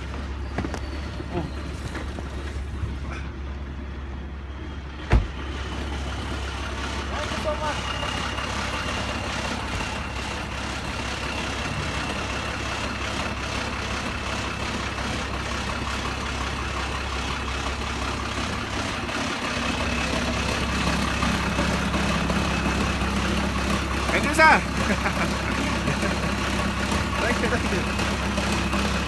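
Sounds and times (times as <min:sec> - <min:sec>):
diesel engine idling: 0:00.0 - 0:29.0.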